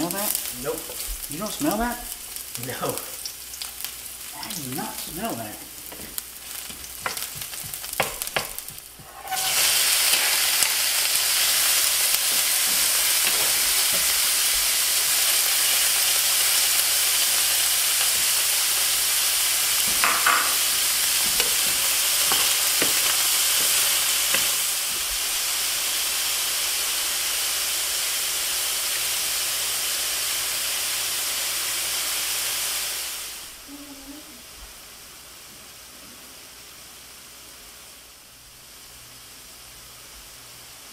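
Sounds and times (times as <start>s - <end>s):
meat hitting hot oil: 0.0s - 26.0s
food sizzling in frying pan: 0.0s - 40.9s
wooden spoon knocks: 7.0s - 8.8s.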